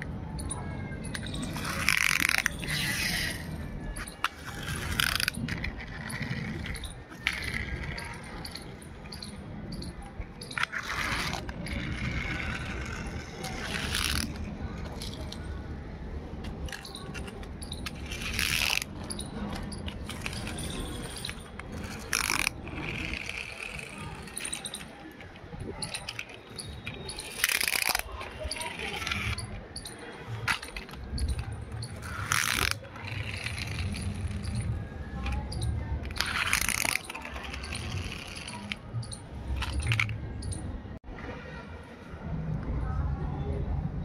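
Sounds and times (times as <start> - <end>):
toy cars scraping on concrete: 0.0 - 15.6, 16.4 - 40.6.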